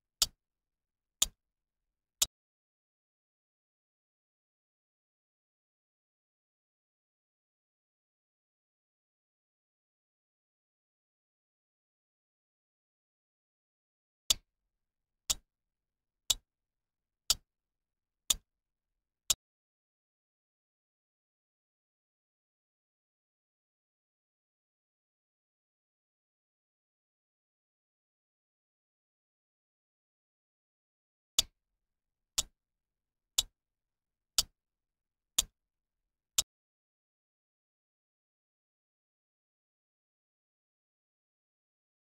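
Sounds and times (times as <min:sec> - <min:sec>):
clock ticks: 0:18.3 - 0:18.5.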